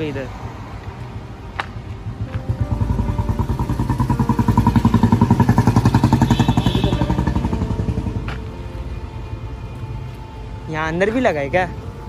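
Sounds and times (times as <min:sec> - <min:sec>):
passing motorbike engine: 0:02.0 - 0:08.8.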